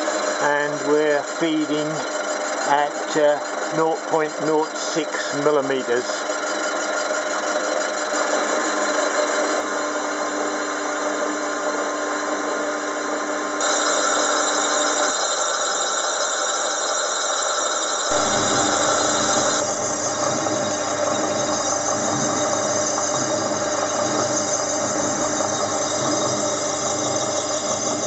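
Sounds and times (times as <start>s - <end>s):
metal cutting noise: 0.0s - 9.6s, 18.1s - 28.0s
hone in spinning cylinder: 0.0s - 12.3s, 13.6s - 28.0s
lathe whirring: 0.0s - 28.0s.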